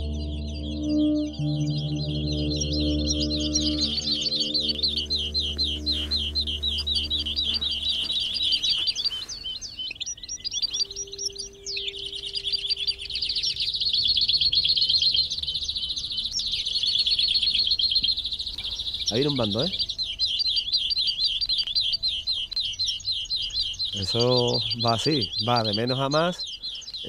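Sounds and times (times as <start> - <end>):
background music: 0.0 - 8.4
finches singing and trilling: 0.0 - 27.0.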